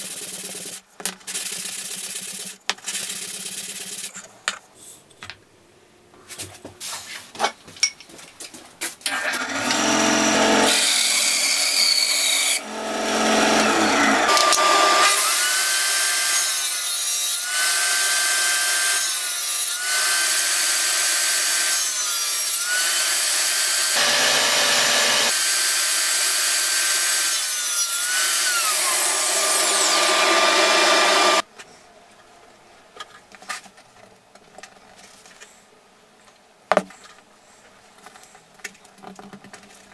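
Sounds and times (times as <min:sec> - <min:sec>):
table saw cutting wood: 0:09.1 - 0:31.4.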